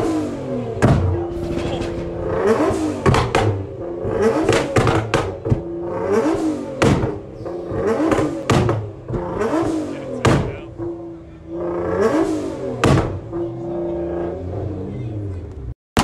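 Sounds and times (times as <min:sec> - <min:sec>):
car engine revving: 0:00.0 - 0:15.7
exhaust pops and bangs: 0:00.8 - 0:07.2, 0:07.8 - 0:10.7, 0:12.8 - 0:13.3.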